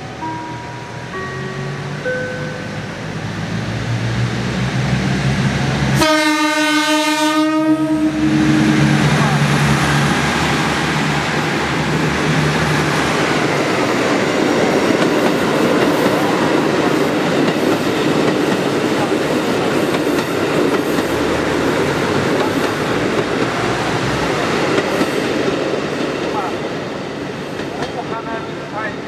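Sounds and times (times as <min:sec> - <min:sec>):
diesel train rumbling past: 0:00.0 - 0:29.0
wheels clacking over rail joints: 0:09.0 - 0:26.7, 0:27.5 - 0:28.3.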